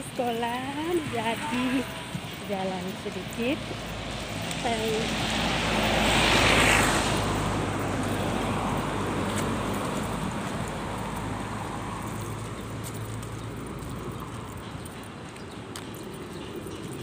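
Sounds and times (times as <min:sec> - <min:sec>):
vehicle passing by: 0:00.8 - 0:17.0.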